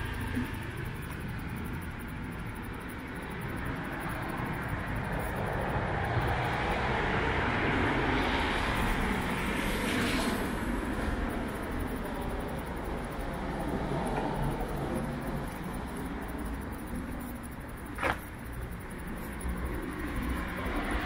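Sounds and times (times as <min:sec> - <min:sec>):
vehicle passing: 0:02.3 - 0:21.0.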